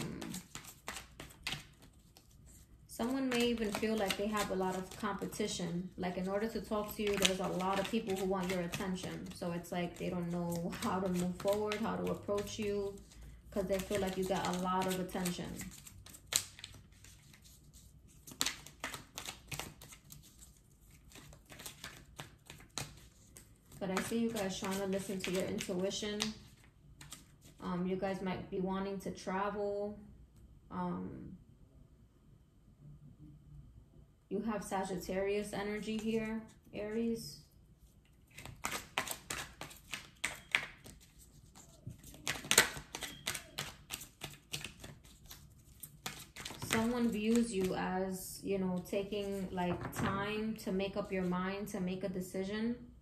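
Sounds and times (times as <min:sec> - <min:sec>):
cards clicking and swishing: 0:00.0 - 0:05.4, 0:06.4 - 0:09.4, 0:10.2 - 0:27.6, 0:38.3 - 0:47.7.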